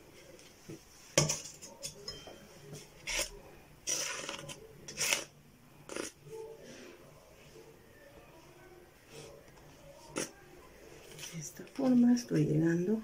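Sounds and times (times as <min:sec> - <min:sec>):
metal spatula scraping foil pan: 0:02.9 - 0:06.1.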